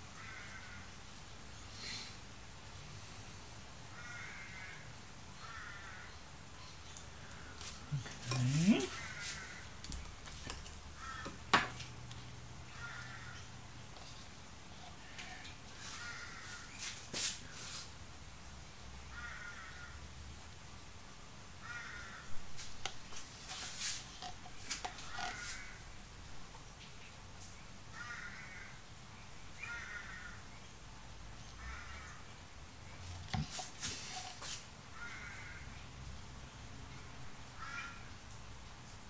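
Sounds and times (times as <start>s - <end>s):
crow cawing: 0.2s - 0.9s, 3.9s - 6.2s, 8.7s - 9.8s, 10.9s - 11.4s, 12.7s - 13.5s, 15.8s - 16.8s, 19.1s - 20.0s, 21.6s - 22.4s, 25.0s - 25.8s, 27.9s - 28.8s, 29.6s - 30.4s, 31.6s - 32.2s, 35.0s - 35.7s, 37.5s - 38.1s.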